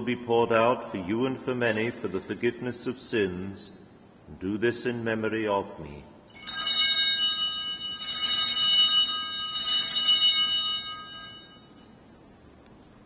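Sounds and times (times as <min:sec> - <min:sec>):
small bells ringing: 0:06.3 - 0:12.0.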